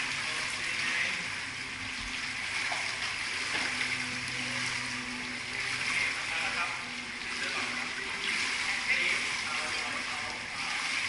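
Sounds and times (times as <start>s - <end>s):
pool water splashing and lapping: 0.0s - 11.0s.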